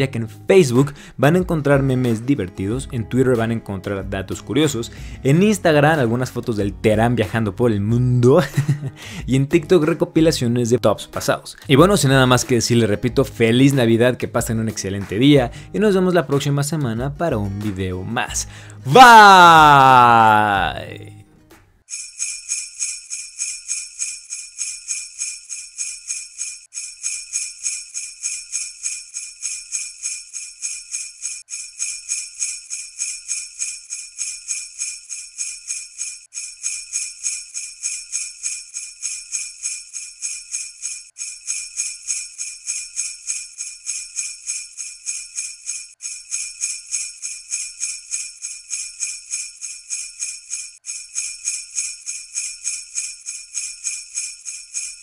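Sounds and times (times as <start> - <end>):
sleigh bells shaking: 21.9 - 55.0.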